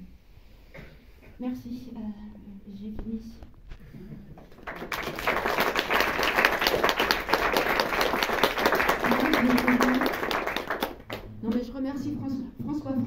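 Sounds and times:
audience applauding: 4.4s - 11.4s.

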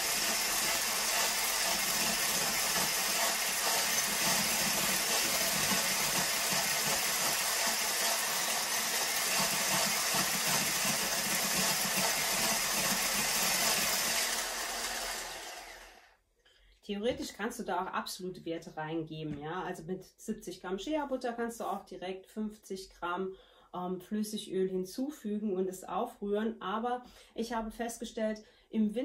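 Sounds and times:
electric hand mixer whisking: 0.0s - 16.1s.

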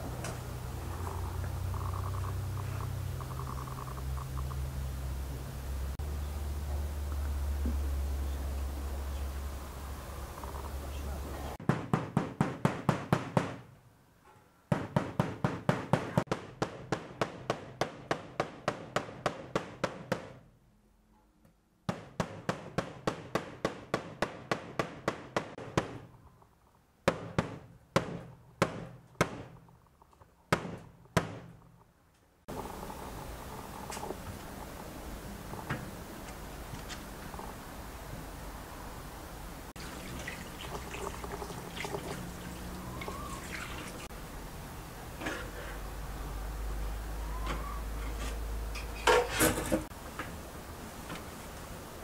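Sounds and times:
low steady hum: 0.0s - 11.6s
meat mallet pounding on wood: 27.1s - 29.6s.

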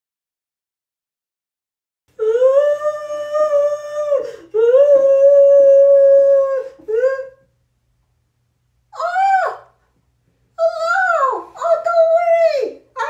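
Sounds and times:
high voice holding wordless notes: 10.6s - 13.0s.

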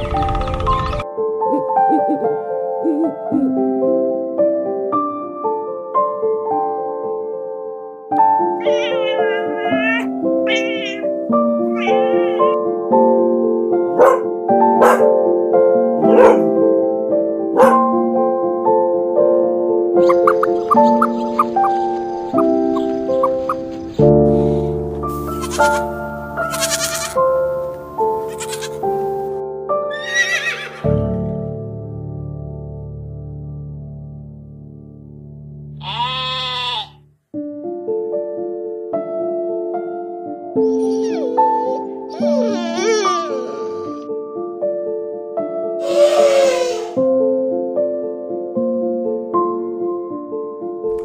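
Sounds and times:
gentle keyboard chords: 0.0s - 29.8s
slow sustained background music: 1.0s - 35.8s, 37.3s - 51.0s
goat bleating: 8.6s - 11.0s, 25.4s - 25.9s, 26.5s - 27.2s, 28.3s - 28.8s, 35.8s - 37.0s.

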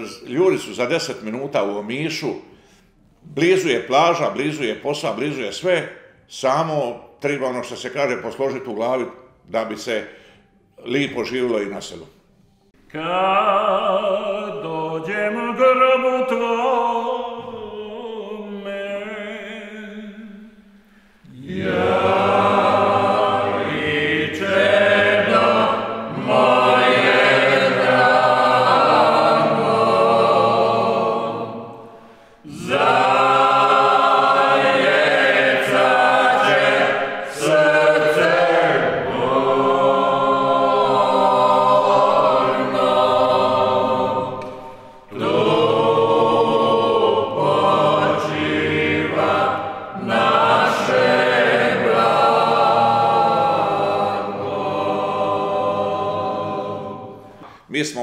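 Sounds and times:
group of voices singing chant: 21.2s - 57.6s.

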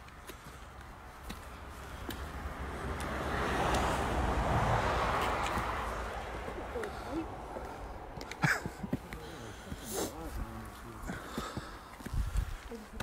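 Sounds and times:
rushing noise with low rumble: 1.6s - 6.5s.

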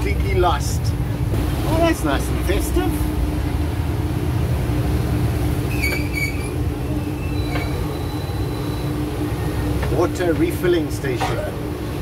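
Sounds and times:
bus engine and road rumble: 0.0s - 12.0s
droning hum: 0.0s - 12.0s
brief high squeaks: 5.7s - 8.9s.

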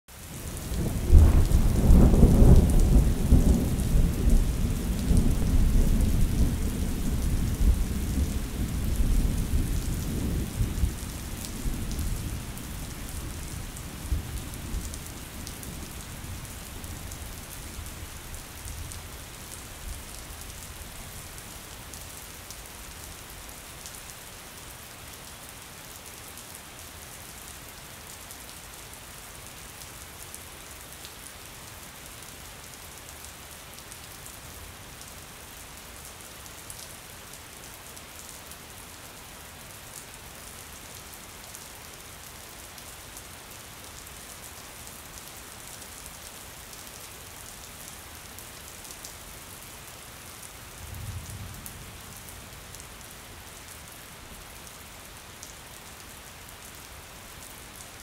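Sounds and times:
steady rain: 0.1s - 58.0s
deep rumble of thunder: 0.7s - 16.1s.

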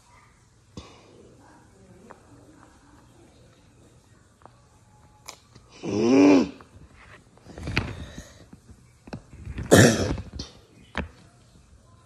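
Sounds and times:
person coughing: 9.7s - 10.5s.

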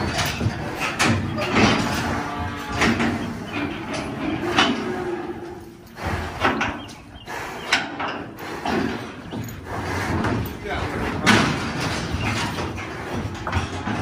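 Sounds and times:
animal knocking against metal trailer: 0.0s - 4.9s, 7.8s - 14.0s
bull mooing: 0.0s - 12.0s.

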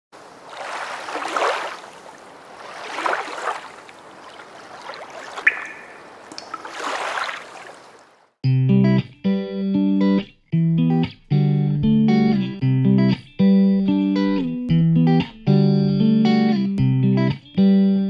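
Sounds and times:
swells of washing water: 0.2s - 8.3s
guitar music: 8.4s - 18.0s.

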